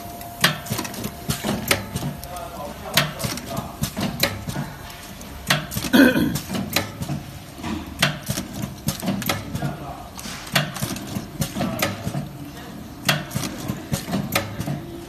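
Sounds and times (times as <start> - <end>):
packing machine hum: 0.0 - 15.0.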